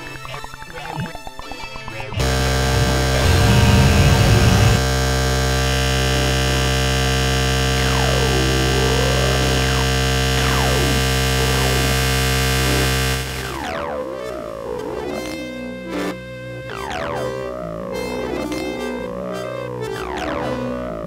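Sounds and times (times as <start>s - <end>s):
low rumble: 2.2s - 8.5s
synthesizer drone: 2.2s - 21.0s.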